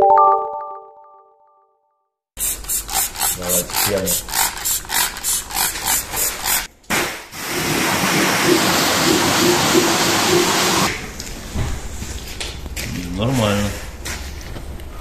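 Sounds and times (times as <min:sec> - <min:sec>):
pressure washer jet hissing: 0:02.4 - 0:06.7, 0:07.4 - 0:10.9
spray bottle squirts: 0:02.4 - 0:07.2.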